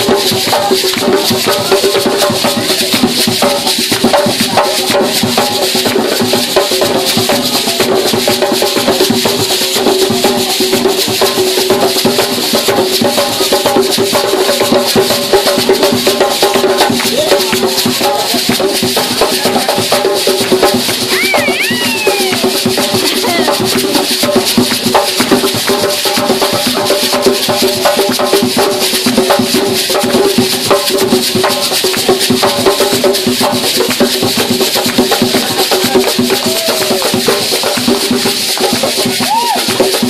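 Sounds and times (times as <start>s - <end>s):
hand drum rhythm: 0.0s - 40.0s
hands clapping: 0.3s - 4.5s, 5.8s - 6.2s, 16.4s - 25.4s, 31.5s - 32.2s, 33.6s - 39.8s
gourd shakers rattling: 14.9s - 40.0s
voices singing: 21.0s - 24.2s.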